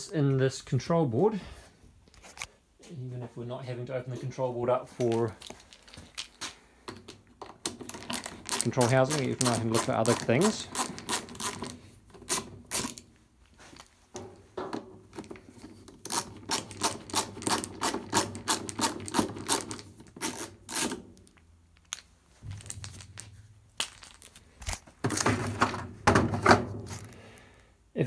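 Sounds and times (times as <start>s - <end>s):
plastic housing clatter: 6.9s - 13.0s, 14.7s - 27.2s.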